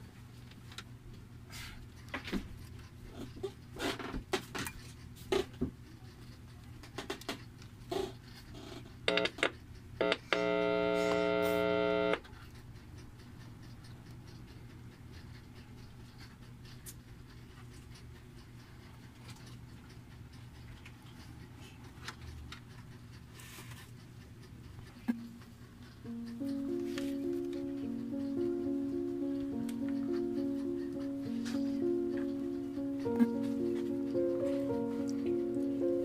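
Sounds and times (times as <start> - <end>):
test probes clicking and tapping: 9.1 - 15.5
steady buzzing tone: 10.0 - 12.2.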